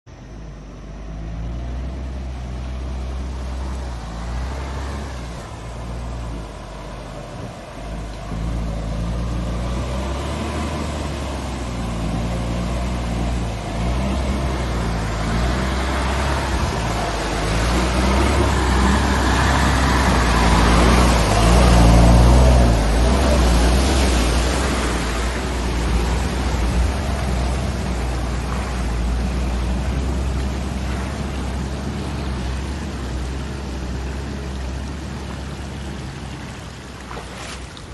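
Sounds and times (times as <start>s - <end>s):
truck diesel engine: 0.1s - 37.9s
water splashing under tyres: 1.8s - 37.9s.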